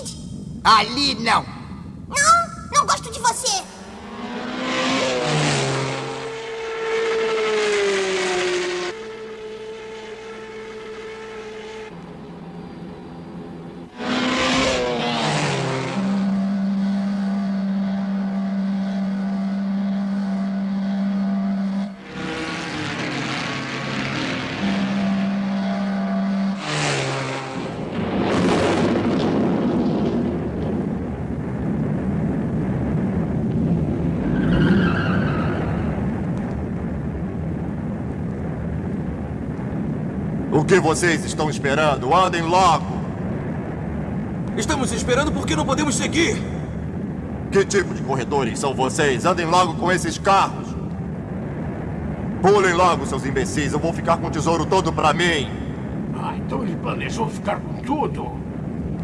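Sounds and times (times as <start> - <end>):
dense noisy rumble: 0.0 - 6.4, 8.9 - 59.0
cartoon race car engine drones: 3.8 - 30.3
falling whines of passing cars: 3.8 - 30.9, 33.3 - 36.7.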